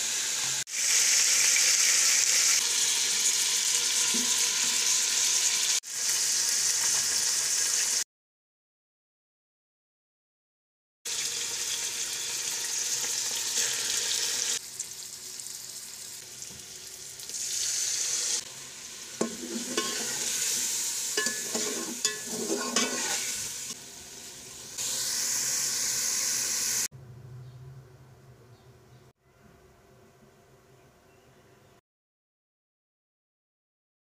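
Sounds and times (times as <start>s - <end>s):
meat sizzling in hot oil: 0.0s - 8.0s, 11.1s - 26.9s
metal spatula scraping pot: 19.2s - 23.8s.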